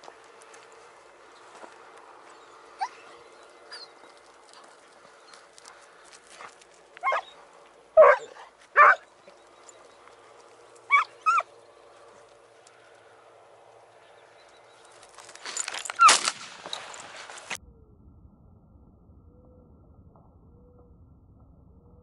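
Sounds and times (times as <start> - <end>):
hounds baying: 1.5 - 12.4.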